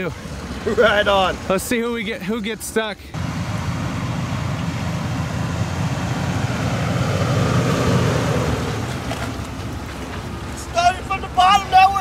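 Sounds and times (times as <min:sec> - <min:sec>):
truck engine revving: 0:03.2 - 0:12.0.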